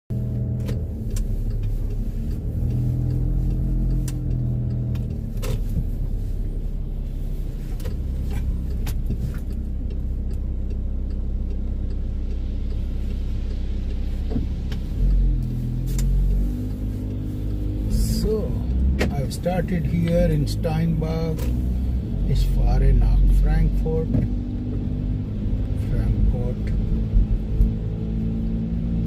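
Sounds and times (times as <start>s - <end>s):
car engine and road rumble: 0.0s - 29.0s
sharp ticks: 0.3s - 6.1s, 7.8s - 21.6s.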